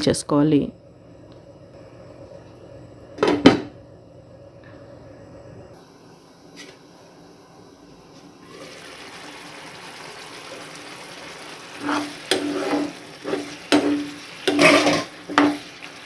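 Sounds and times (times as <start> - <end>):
gravy bubbling in a pan: 8.4 - 16.0
spoon stirring and scraping pan: 11.7 - 16.0
spoon knocking on pan: 13.7 - 15.6.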